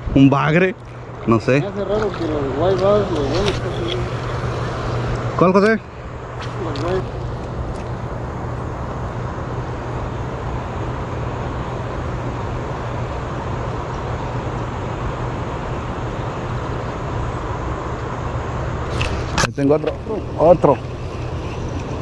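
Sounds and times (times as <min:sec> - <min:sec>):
even rushing noise: 0:00.0 - 0:11.8
steady low hum: 0:00.0 - 0:22.0.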